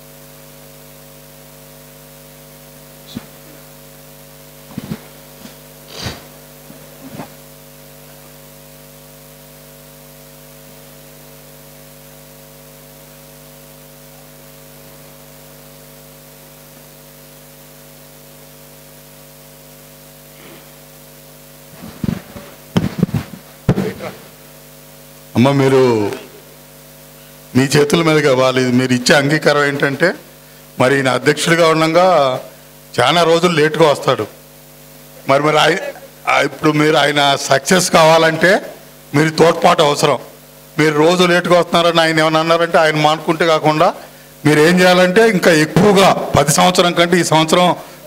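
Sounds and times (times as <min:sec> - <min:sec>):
electrical mains hum: 0:00.0 - 0:48.0
microphone handling noise: 0:03.1 - 0:03.7, 0:04.6 - 0:07.5, 0:21.6 - 0:24.4.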